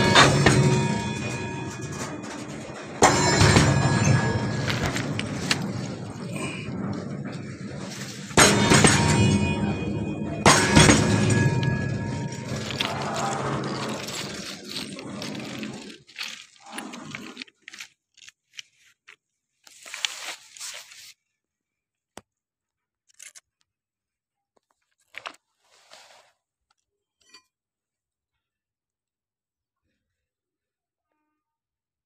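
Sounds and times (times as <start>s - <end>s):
train wheels rolling on rails: 0.0s - 17.5s
crunches and scrapes: 0.0s - 21.2s, 23.1s - 23.6s, 24.6s - 27.5s.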